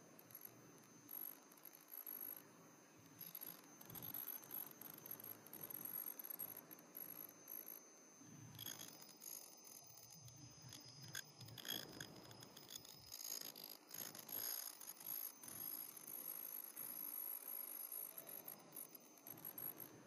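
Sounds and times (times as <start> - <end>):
steady high-pitched tones: 0.0 - 20.0.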